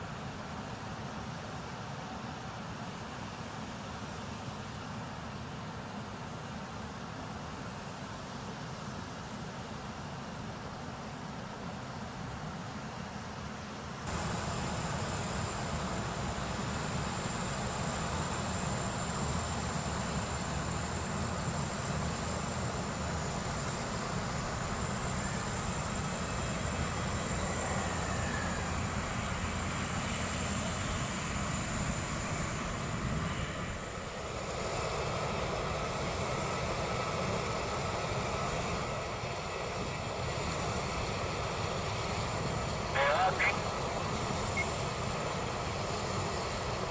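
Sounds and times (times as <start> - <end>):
jet engines roaring: 14.1 - 46.9
thin high engine tone: 38.1 - 46.9.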